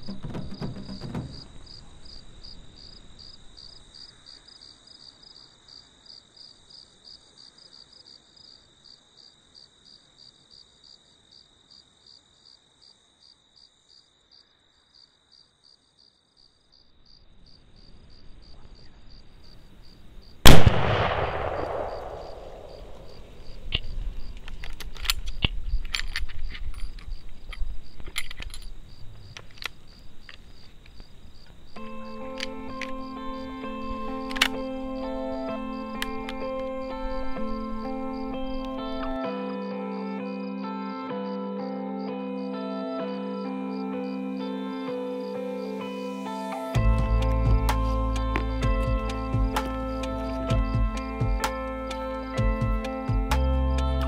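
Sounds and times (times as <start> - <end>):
insects chirping: 0.0 - 54.0
rifle shot: 20.5 - 23.4
clicks and rustling: 23.7 - 31.0.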